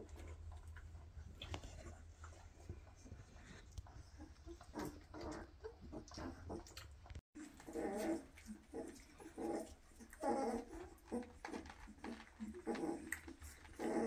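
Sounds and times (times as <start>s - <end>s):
puppies whimpering and squealing: 7.4s - 14.0s.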